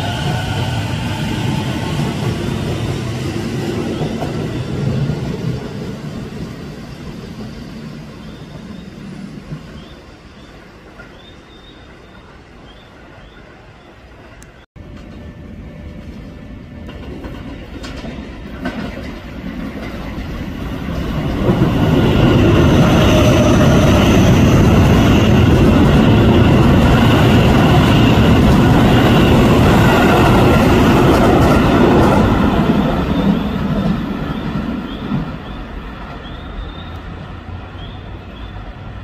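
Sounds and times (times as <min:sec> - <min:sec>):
electric train passing: 0:00.0 - 0:39.0
high train whine: 0:00.0 - 0:39.0
rail clatter: 0:14.8 - 0:37.9.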